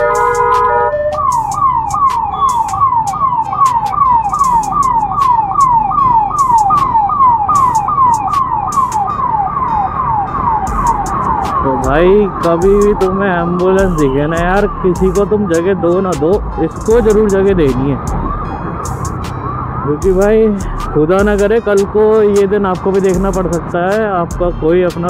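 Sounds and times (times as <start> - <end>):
ambulance siren wailing: 0.0 - 24.0.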